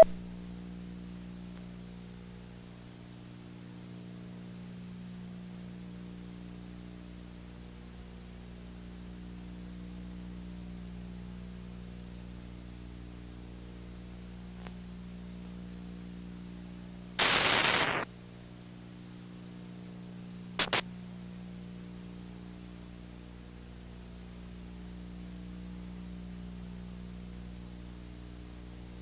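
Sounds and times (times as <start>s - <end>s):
electrical hum with hiss: 0.0s - 29.0s
burst of static: 17.2s - 18.1s, 20.6s - 20.9s
short crackles: 17.2s - 18.1s, 20.6s - 20.8s.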